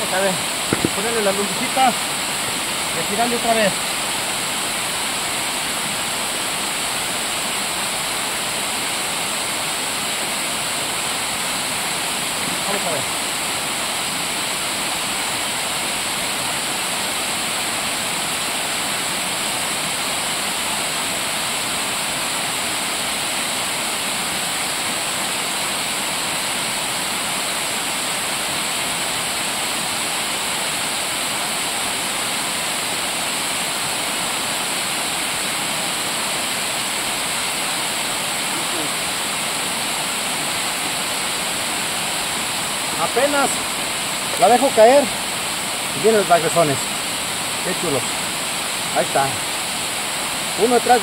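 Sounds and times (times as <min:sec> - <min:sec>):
waterfall pouring into pool: 0:00.0 - 0:51.0.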